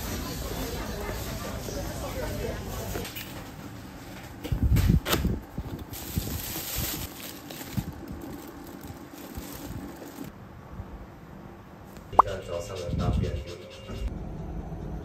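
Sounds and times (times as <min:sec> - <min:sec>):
rustling cardboard and plastic packaging: 0:05.0 - 0:10.3.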